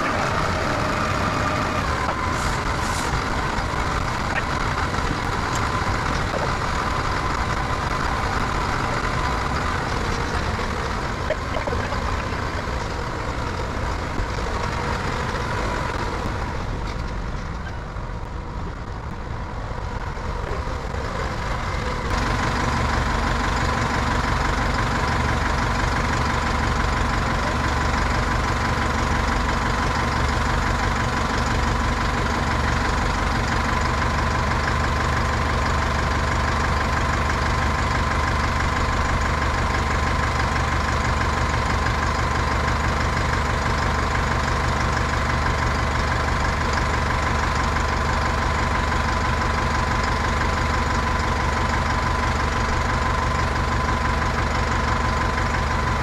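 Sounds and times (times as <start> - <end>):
diesel loader engine idling: 0.0 - 56.0.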